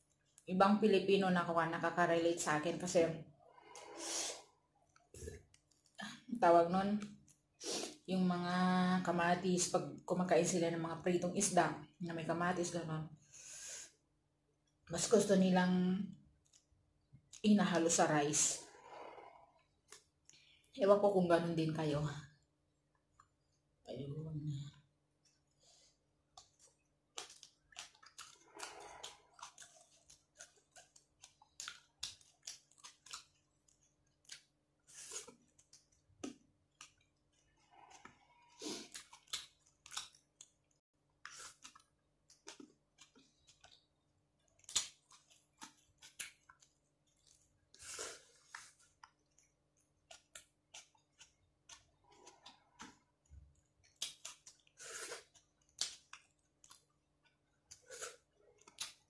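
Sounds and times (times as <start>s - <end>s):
person chewing and lip-smacking: 26.3s - 59.0s.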